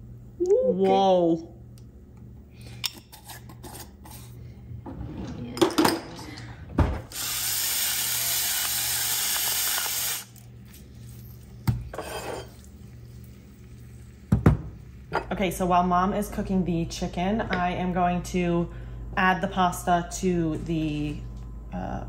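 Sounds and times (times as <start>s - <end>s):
pepper grinder grinding: 7.2s - 11.4s.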